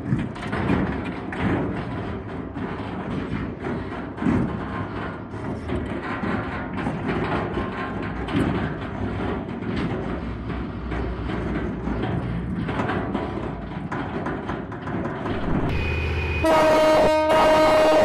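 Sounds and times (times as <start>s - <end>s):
steel tracks clanking: 0.0s - 18.0s
mining machine rumble: 7.8s - 18.0s.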